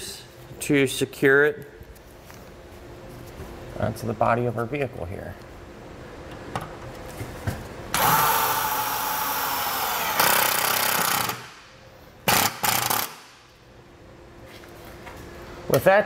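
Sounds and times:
impact driver driving screw: 0:08.0 - 0:11.5, 0:12.3 - 0:13.2.

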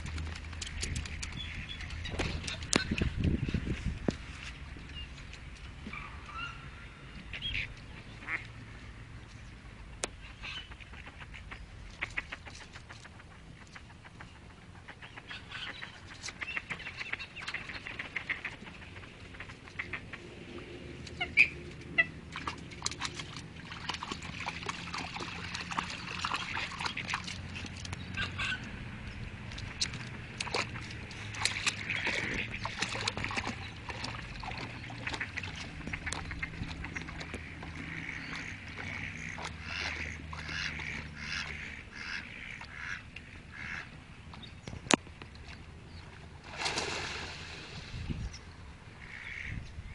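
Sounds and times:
ducks quacking: 0:06.0 - 0:08.6, 0:10.2 - 0:20.3, 0:28.1 - 0:28.8, 0:31.2 - 0:44.0, 0:49.0 - 0:49.6
dog splashing in water: 0:22.4 - 0:28.0, 0:30.4 - 0:41.3.

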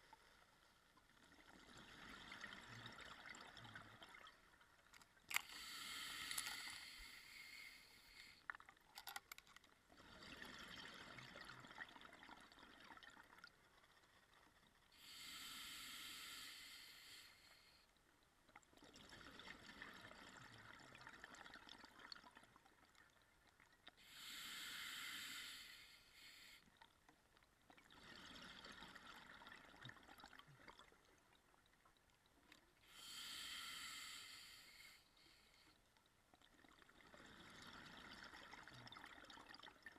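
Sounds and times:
regulator inhalation hiss: 0:05.4 - 0:08.4, 0:15.0 - 0:17.8, 0:24.1 - 0:26.6, 0:32.9 - 0:35.6.

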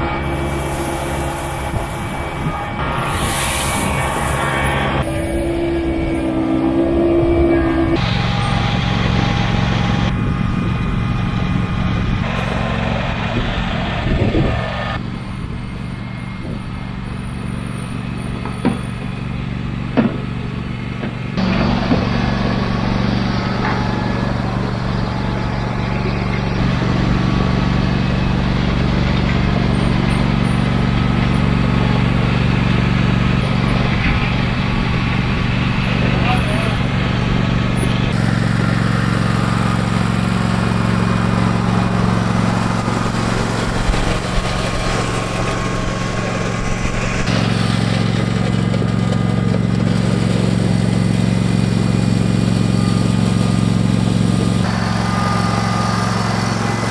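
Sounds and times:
garden tractor engine running: 0:08.0 - 0:56.9
grader box scraping gravel: 0:41.3 - 0:51.2.

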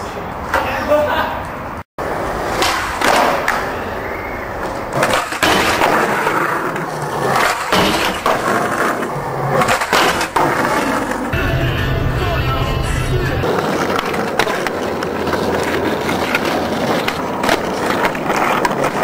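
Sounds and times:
skateboard wheels rolling on concrete: 0:00.0 - 0:19.0
skateboard trucks grinding ledge: 0:02.0 - 0:11.4, 0:13.4 - 0:19.0
skateboard deck cracking on ground: 0:02.2 - 0:03.8, 0:04.6 - 0:11.3, 0:13.4 - 0:19.0.

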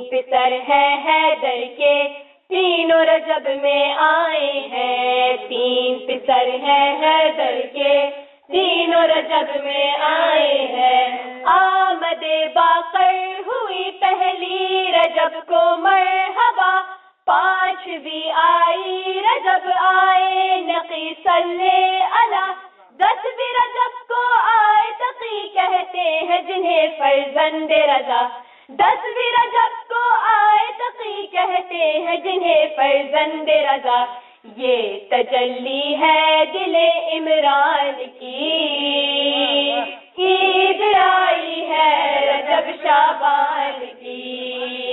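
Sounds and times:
girls singing devotional song: 0:00.0 - 0:44.9.

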